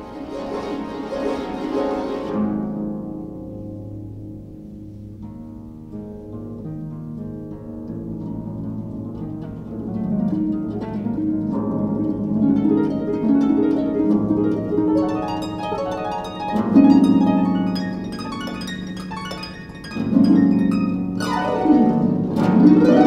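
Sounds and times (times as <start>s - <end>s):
harp plucked runs: 9.2s - 23.0s.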